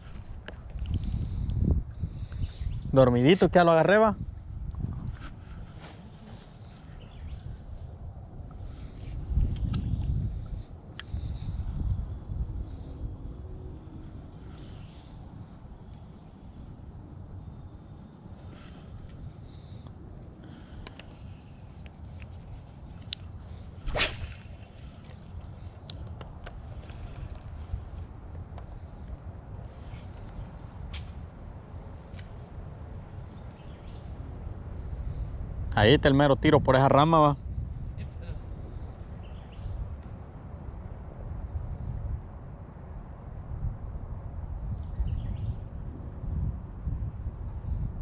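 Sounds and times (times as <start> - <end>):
wind rumbling on microphone: 0.0 - 48.0
bird chirping: 5.5 - 7.5
faint clicks: 20.8 - 21.2
fishing rod swishing: 23.6 - 25.1.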